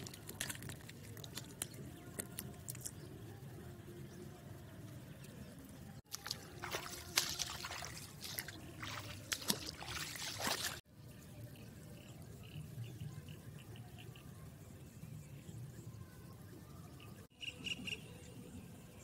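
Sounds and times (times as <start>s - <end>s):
water trickling and splashing: 0.0s - 2.8s, 6.0s - 10.9s.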